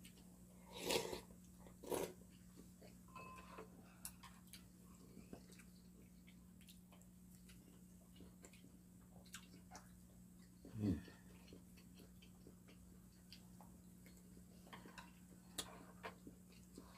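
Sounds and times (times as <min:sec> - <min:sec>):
quiet chewing: 0:00.0 - 0:16.9
slurping soup from spoon: 0:00.7 - 0:02.2.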